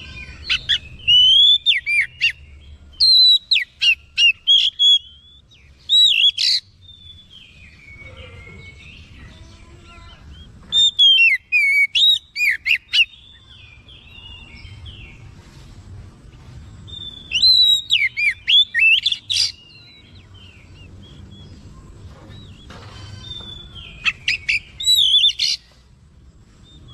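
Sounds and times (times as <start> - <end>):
bird singing whistled phrases: 0.0 - 2.4, 3.0 - 8.8, 10.3 - 13.4, 16.9 - 20.2, 22.4 - 25.6.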